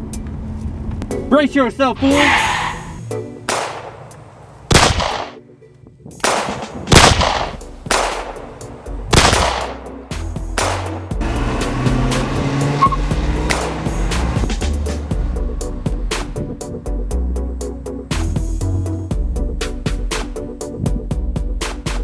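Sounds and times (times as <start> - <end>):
music track: 3.0 - 4.2, 7.5 - 22.0
loud sharp bangs: 3.4 - 4.0, 4.7 - 5.4, 6.2 - 8.4, 9.1 - 9.9.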